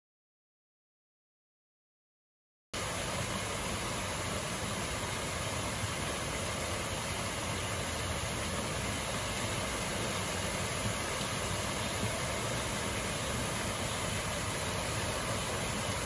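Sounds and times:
waterfall pouring over weir: 2.8 - 16.0.

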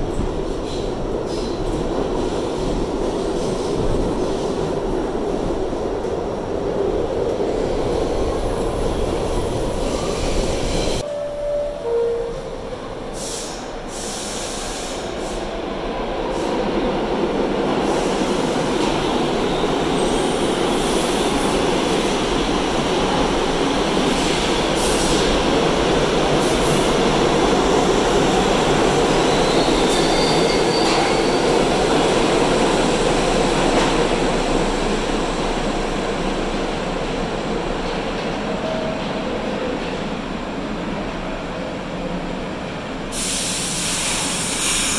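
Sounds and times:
subway train rumbling: 0.0 - 44.9
high wheel squeal: 29.3 - 31.5.

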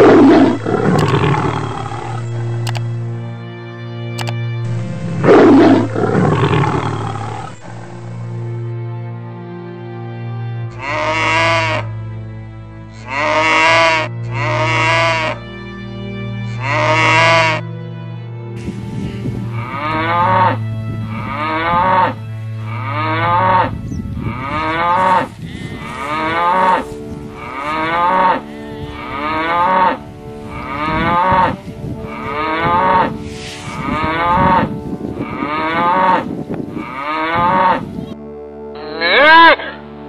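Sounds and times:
cows mooing: 0.0 - 2.8, 4.7 - 8.4, 10.7 - 12.0, 12.9 - 15.4, 16.5 - 17.6, 18.6 - 38.1, 38.7 - 40.0
low steady drone: 0.0 - 40.0.

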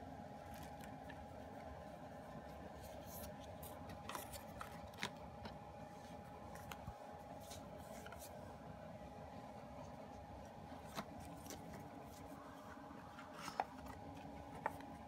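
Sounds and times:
faint steady hum: 0.0 - 15.0
paper and card rustling: 2.4 - 8.5, 9.8 - 15.0.

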